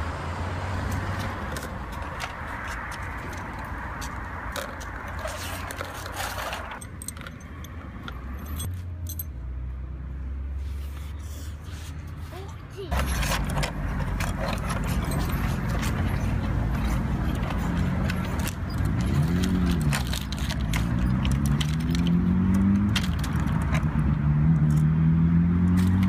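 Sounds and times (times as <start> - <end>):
steel chain clinking and rattling: 4.5 - 9.4, 12.9 - 23.8.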